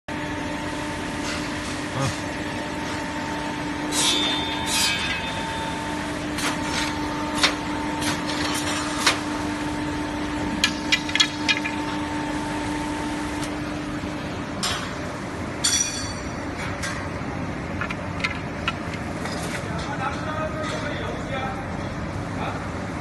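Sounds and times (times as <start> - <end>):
electric motors humming: 0.1 - 15.6.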